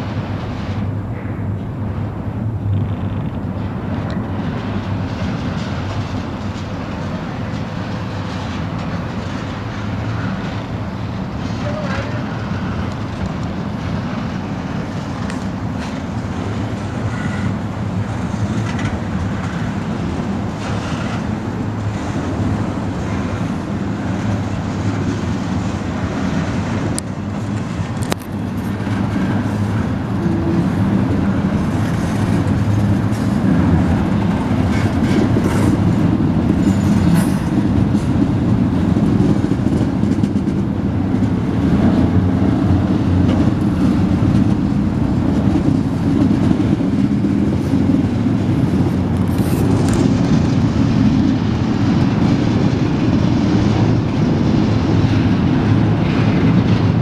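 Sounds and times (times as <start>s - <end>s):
freight train wheels rumbling: 0.0s - 57.0s
wheel clicks on rail: 12.8s - 22.6s.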